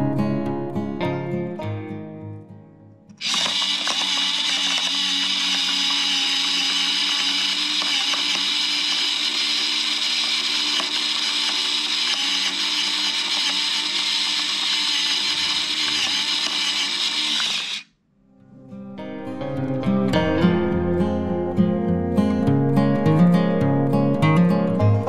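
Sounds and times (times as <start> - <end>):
electric pepper mill whirring: 3.1 - 17.9.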